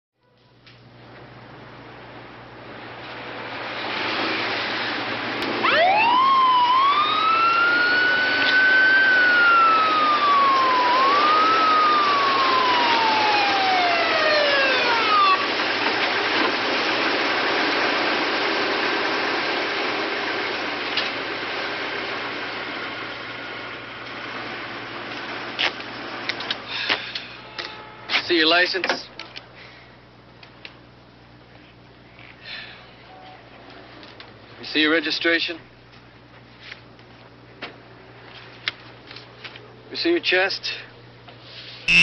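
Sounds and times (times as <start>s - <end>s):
police siren wailing: 5.6s - 16.2s.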